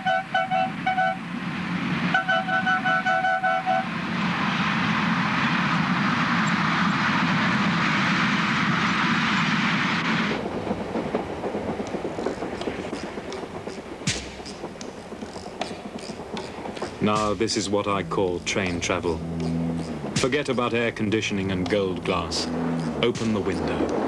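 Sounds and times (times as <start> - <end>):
locomotive horn toots: 0.0 - 1.3, 2.1 - 3.9, 17.8 - 20.4
train passing with rushing noise: 0.0 - 24.0
train running inside carriage: 0.0 - 24.0.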